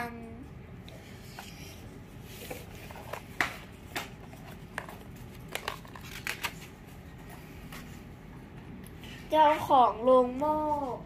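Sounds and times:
paper pages turning: 2.3 - 8.0.

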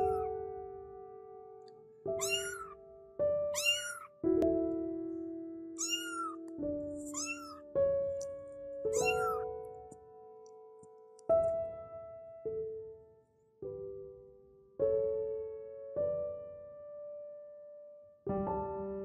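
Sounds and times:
kittens meowing: 0.0 - 0.3, 2.2 - 2.8, 3.6 - 4.1, 5.8 - 7.7, 8.9 - 9.5
slow piano music: 0.0 - 19.0.

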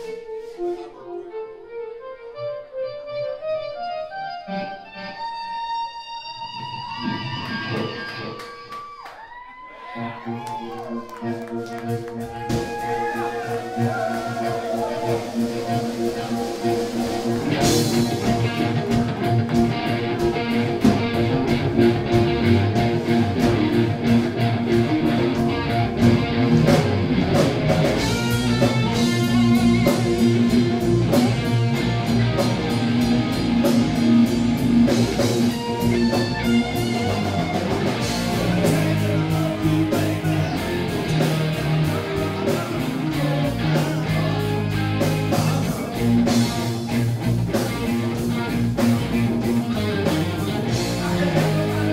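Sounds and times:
electric guitars: 0.0 - 9.1, 9.8 - 51.9
bass guitar: 3.2 - 8.7, 10.0 - 51.9
drum kit: 10.5 - 51.9.

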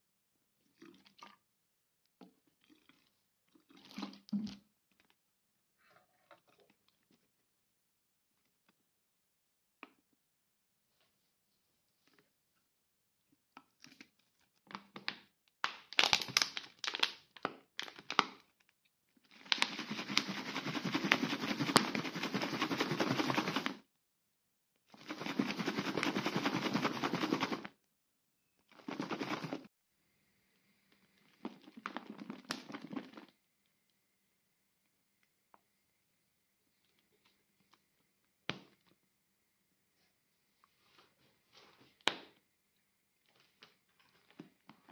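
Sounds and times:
liquid sloshing in shaken bottle: 19.4 - 23.8, 25.0 - 27.7, 28.7 - 29.7.

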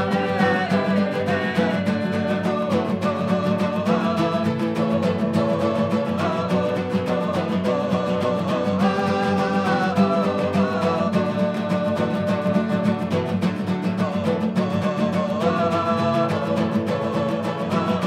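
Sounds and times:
classical guitars strummed: 0.0 - 18.0
man and woman singing: 0.0 - 18.0.

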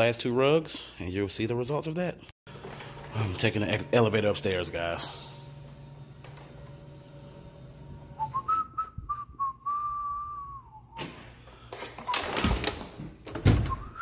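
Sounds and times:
person whistling a long note: 8.2 - 11.0, 13.7 - 14.0.

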